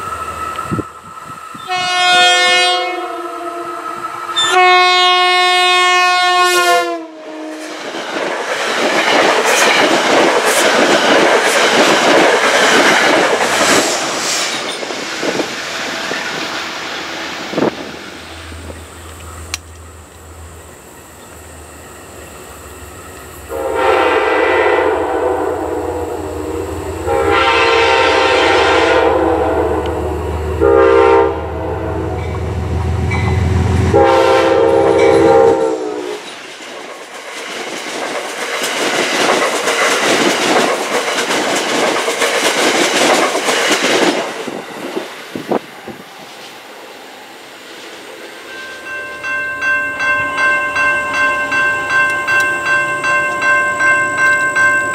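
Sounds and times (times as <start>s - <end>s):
locomotive engine drone: 0.0s - 5.4s, 15.4s - 36.2s
train horn blasts: 1.6s - 7.7s, 23.5s - 36.3s
train cars clattering on rails: 7.7s - 21.3s, 36.2s - 46.0s
crossing bell ringing: 32.0s - 34.1s, 34.9s - 35.4s, 48.4s - 54.9s.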